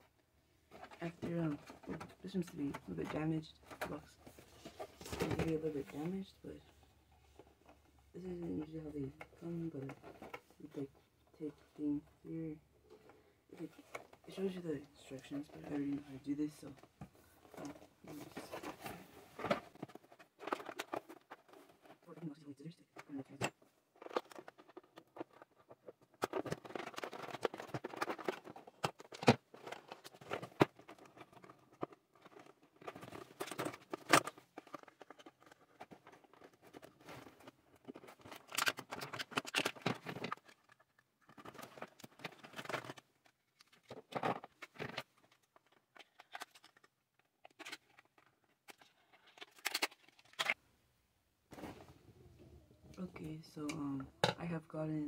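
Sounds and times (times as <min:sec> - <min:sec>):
packaging rustling and scraping: 0:16.6 - 0:22.1, 0:23.2 - 0:50.6.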